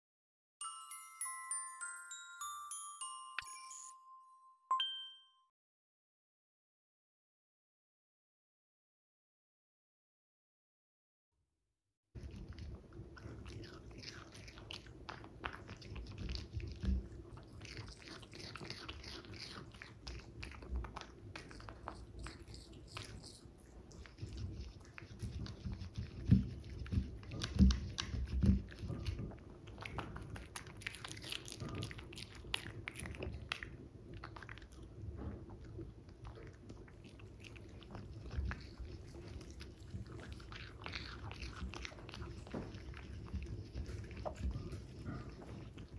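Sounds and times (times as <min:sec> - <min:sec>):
dog biting and chewing: 0:12.2 - 0:45.9.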